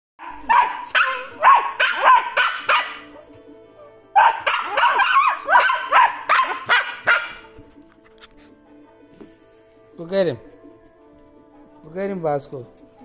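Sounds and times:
puppies barking and yipping: 0:00.2 - 0:07.6.

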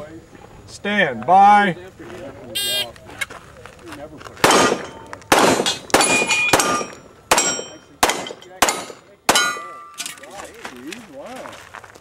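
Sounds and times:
pistol shots: 0:04.4 - 0:09.7.

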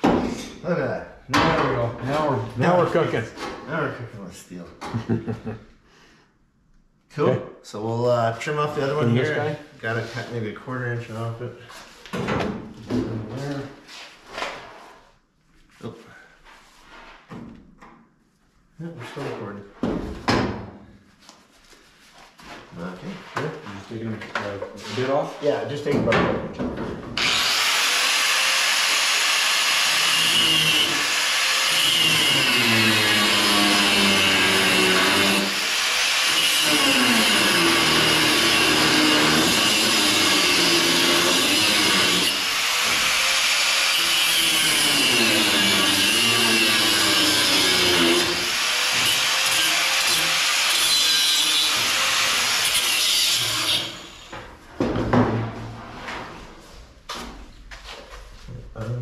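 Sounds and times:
angle grinder cutting steel: 0:27.2 - 0:54.3.

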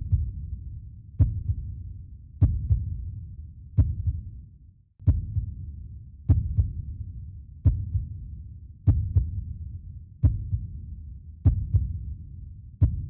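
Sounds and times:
heartbeat double thump: 0:02.4 - 0:03.0, 0:05.1 - 0:05.5, 0:07.7 - 0:08.0, 0:11.5 - 0:11.9.

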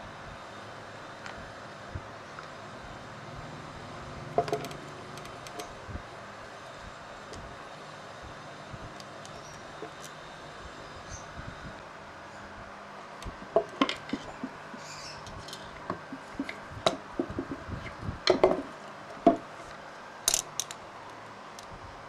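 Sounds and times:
metal parts clinking on wood: 0:20.3 - 0:20.8.

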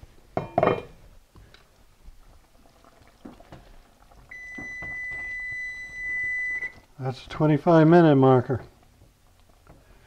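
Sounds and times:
kitchen timer beeping: 0:04.3 - 0:06.8.

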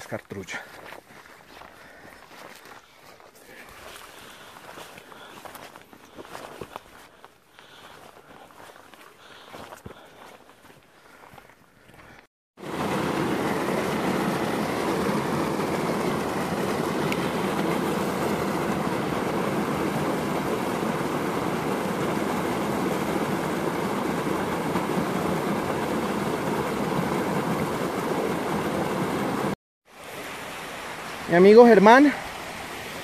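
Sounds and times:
stream rushing over rocks: 0:12.6 - 0:33.0.

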